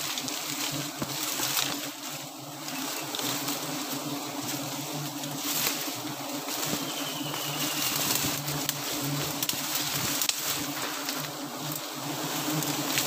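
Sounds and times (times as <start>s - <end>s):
bees buzzing: 0.0s - 13.0s.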